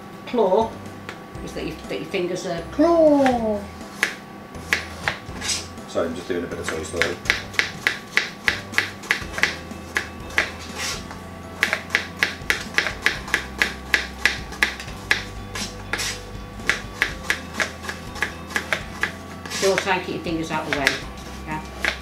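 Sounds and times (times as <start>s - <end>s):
knives tapping on plastic boards: 4.0s - 5.6s, 6.6s - 10.6s, 11.6s - 19.9s, 20.5s - 22.0s.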